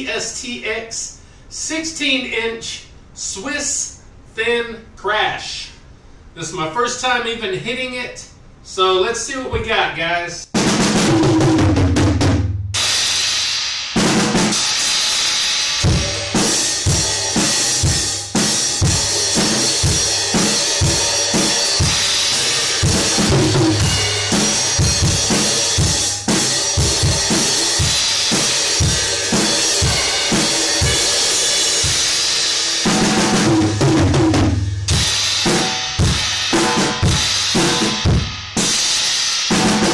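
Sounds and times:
bass drum and snare beat: 10.5s - 13.4s, 14.0s - 39.9s
tom drum fill: 10.5s - 13.4s, 15.8s - 38.9s
ringing cymbals: 12.8s - 32.9s.

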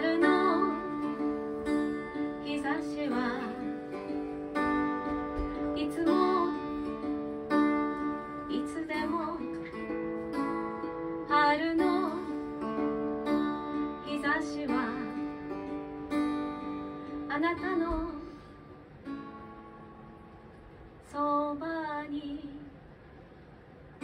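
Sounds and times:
woman singing: 0.0s - 15.5s, 17.1s - 18.6s, 21.0s - 22.8s
strummed acoustic guitar: 0.0s - 20.8s.

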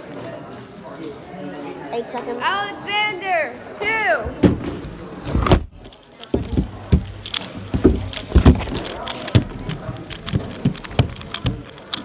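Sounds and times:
puzzle cube clicking: 7.1s - 12.0s.

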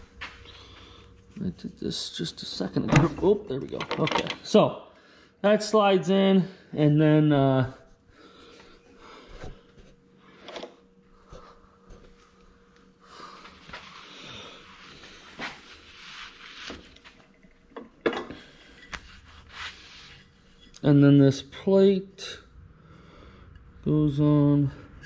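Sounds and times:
faint steady hum: 0.0s - 25.0s
towel rubbing over metal shaft: 13.7s - 17.2s, 18.9s - 20.6s.

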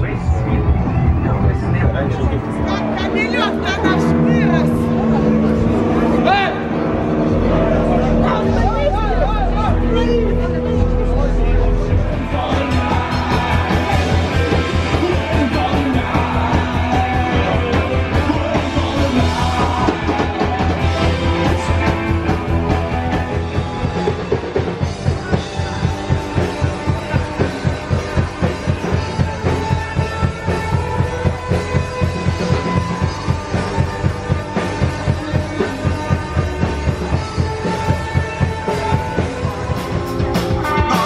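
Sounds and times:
punk rock music: 0.0s - 41.0s
drum kit beat: 11.9s - 41.0s.

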